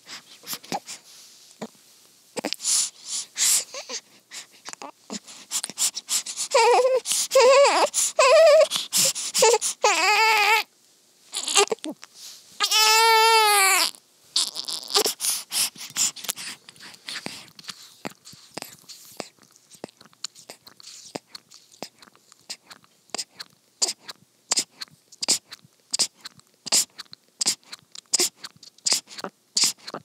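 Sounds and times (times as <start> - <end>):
baby sucking and swallowing milk: 0.0 - 1.0, 2.4 - 10.6, 14.4 - 30.0
newborn baby crying: 2.4 - 10.7, 11.3 - 12.0, 12.6 - 17.4.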